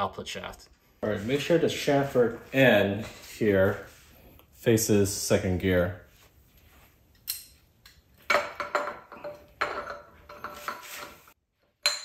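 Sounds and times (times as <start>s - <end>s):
metallic clinks and scrapes: 8.7s - 12.0s.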